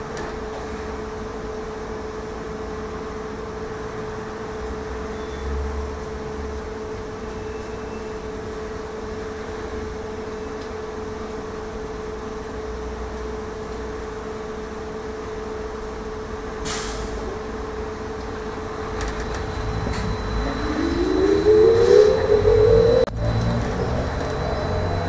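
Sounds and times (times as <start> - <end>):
trolleybus electric whine: 0.0 - 25.0
air release hiss: 16.6 - 17.3.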